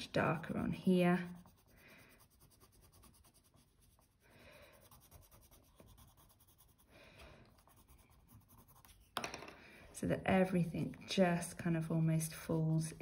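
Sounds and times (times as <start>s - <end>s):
pencil scratching on paper: 0.2s - 9.2s.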